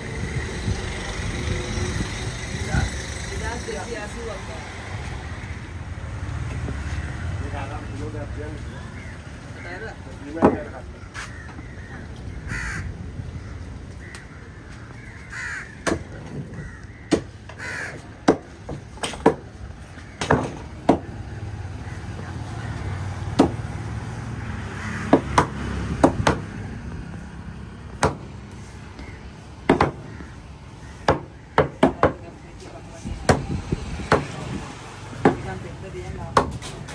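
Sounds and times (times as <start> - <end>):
bird caws: 8.5 - 18.8, 19.8 - 23.2, 24.6 - 25.5, 28.6 - 32.2
cleaver chopping fish on wooden block: 15.8 - 16.2, 17.1 - 17.3, 18.2 - 19.5, 23.4 - 23.7, 25.1 - 26.5, 28.0 - 28.3, 29.7 - 30.2, 31.0 - 32.2, 33.2 - 34.4, 35.2 - 35.6, 36.3 - 36.7.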